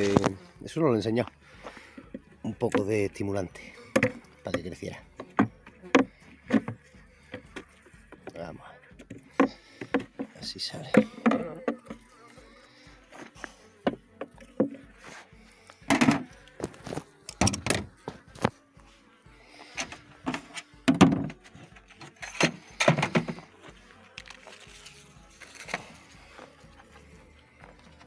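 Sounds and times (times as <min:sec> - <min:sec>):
wooden hive parts clattering: 0:00.0 - 0:00.4, 0:20.3 - 0:23.5.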